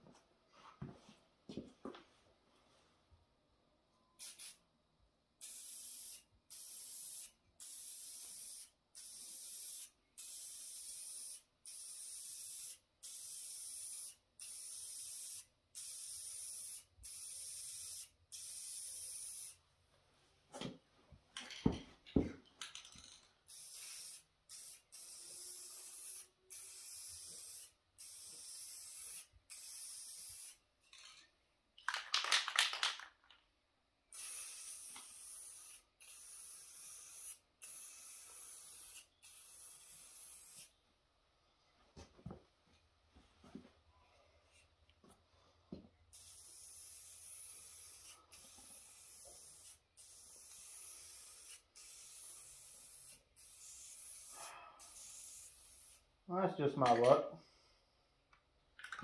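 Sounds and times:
spray can hissing: 4.2s - 4.6s, 5.4s - 19.6s, 23.5s - 30.6s, 34.1s - 40.7s, 46.1s - 56.1s
spray can rattle: 22.6s - 31.2s, 31.8s - 33.4s, 34.1s - 40.7s, 46.1s - 54.3s, 58.8s - 59.0s.

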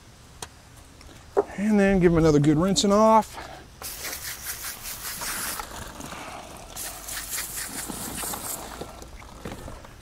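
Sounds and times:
hose nozzle spraying water: 3.8s - 5.9s, 6.6s - 9.0s.

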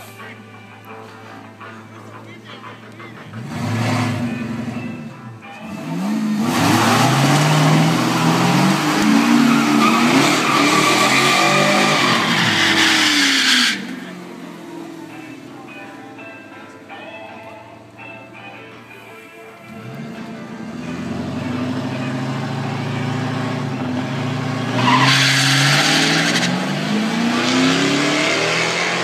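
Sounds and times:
car engine revving high: 3.4s - 5.0s, 5.6s - 14.7s, 19.8s - 29.0s
tyres squealing: 6.4s - 14.2s, 24.7s - 26.9s.

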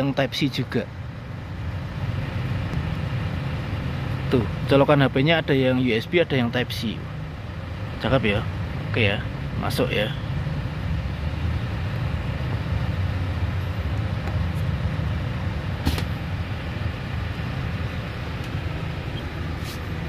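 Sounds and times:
van engine hum inside cabin: 0.0s - 20.0s
sharp click: 15.8s - 16.1s.

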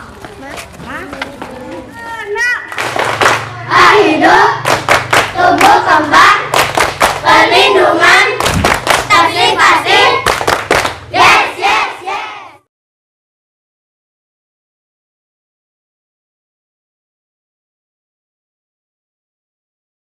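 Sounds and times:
hand claps: 2.7s - 3.5s, 4.6s - 5.8s, 6.5s - 7.3s, 8.4s - 9.1s, 10.2s - 11.0s
children singing: 3.4s - 4.6s, 5.3s - 6.5s, 7.2s - 8.4s, 9.0s - 10.2s, 11.1s - 12.6s.

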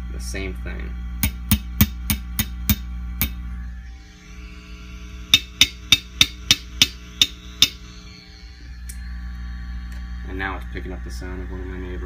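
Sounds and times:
amp mains hum: 0.0s - 12.0s
chopstick tapping amp tubes: 5.3s - 7.8s.

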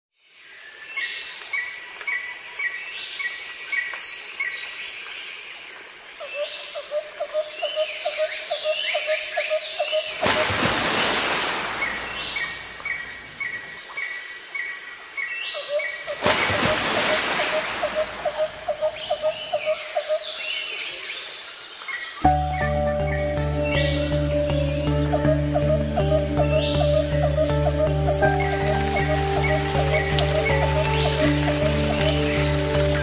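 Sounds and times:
birds singing and calling: 6.3s - 33.0s
fast pulsing bird call: 15.7s - 20.3s, 22.6s - 33.0s.

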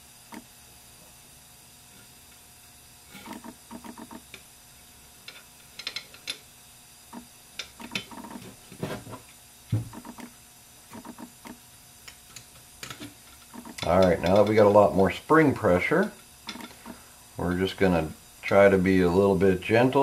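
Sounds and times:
small metal parts clicking: 5.2s - 6.4s, 16.4s - 16.8s
dull knock: 9.7s - 10.0s.

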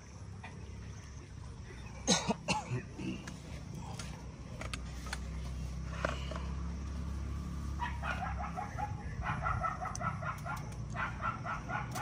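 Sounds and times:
low engine hum: 0.0s - 12.0s.

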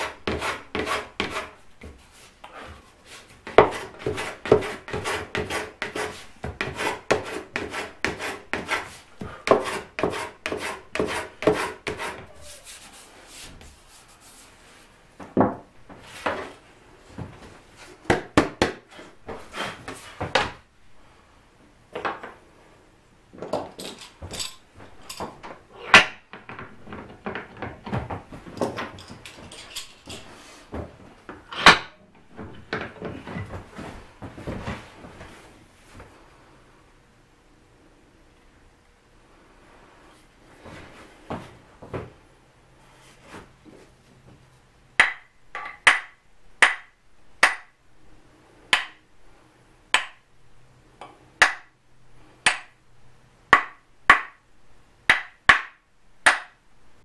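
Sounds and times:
wooden block rubbing on wood: 0.0s - 2.3s, 3.1s - 14.6s.

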